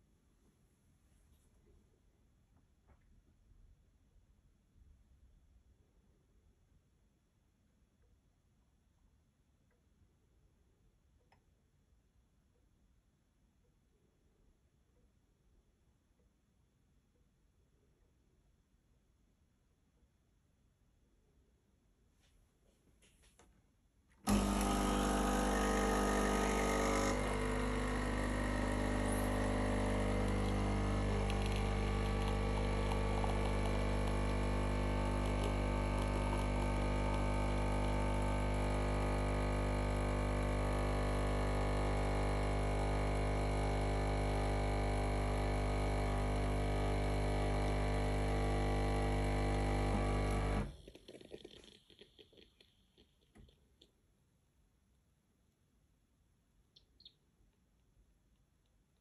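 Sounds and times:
espresso machine pump humming: 0:24.3 - 0:53.5.

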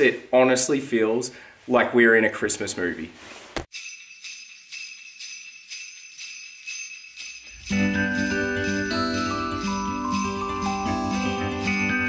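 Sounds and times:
sleigh bells shaking: 0:03.7 - 0:12.0
bass and chords: 0:07.6 - 0:12.0.

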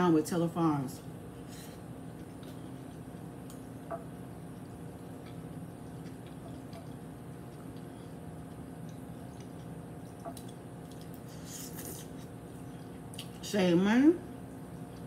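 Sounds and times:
steady low hum: 0:00.0 - 0:15.0
chewing: 0:02.1 - 0:13.4.

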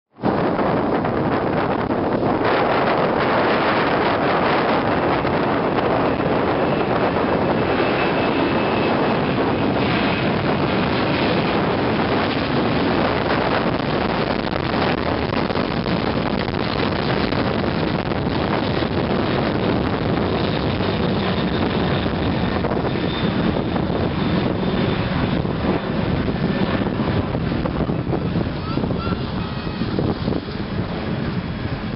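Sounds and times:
jet engines rumbling: 0:00.1 - 0:31.9
wind buffeting microphone: 0:00.1 - 0:31.9.

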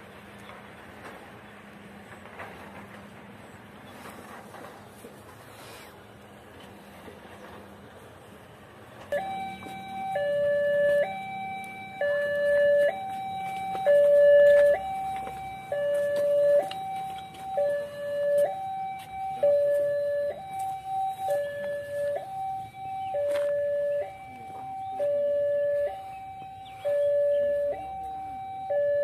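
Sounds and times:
level crossing alarm two-tone signal: 0:09.1 - 0:29.0.

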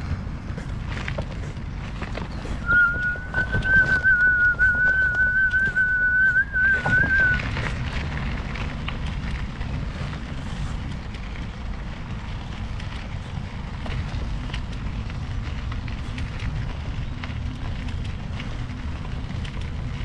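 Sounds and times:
steady low rumble: 0:00.0 - 0:20.0
person whistling long note: 0:02.6 - 0:07.4.

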